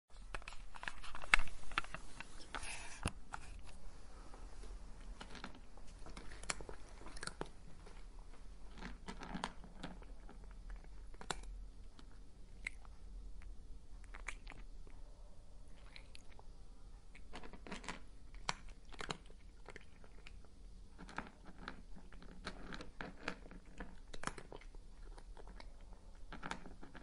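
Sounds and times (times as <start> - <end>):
cat crunching dry kibble: 0.3 - 3.5, 5.1 - 7.6, 8.7 - 12.9, 17.1 - 27.0.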